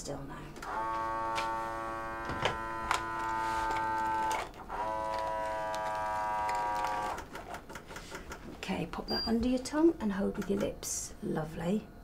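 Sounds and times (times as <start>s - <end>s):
small pump motor whirring: 0.6s - 7.6s.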